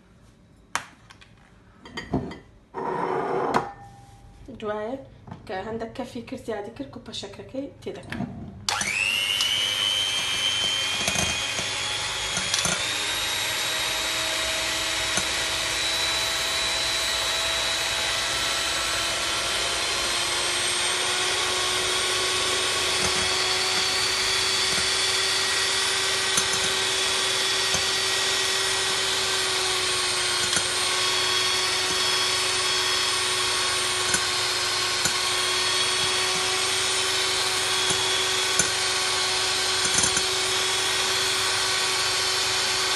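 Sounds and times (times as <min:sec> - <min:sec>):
electric mixer whine: 0:08.7 - 0:42.9
mixer beaters knocking: 0:21.4 - 0:41.4.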